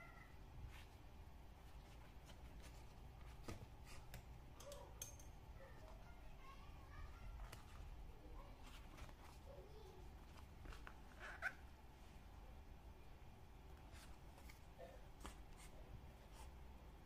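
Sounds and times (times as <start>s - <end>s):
leather squeak: 11.1s - 11.6s.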